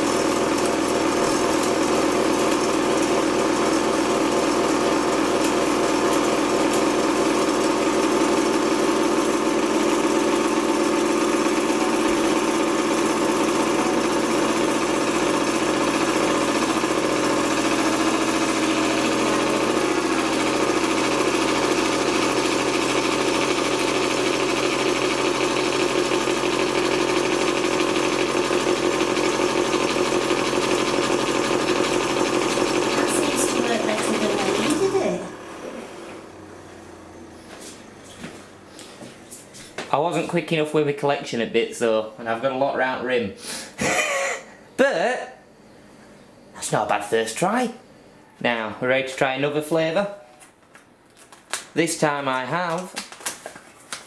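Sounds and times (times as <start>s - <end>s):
candyfloss machine motor humming: 0.0s - 39.8s.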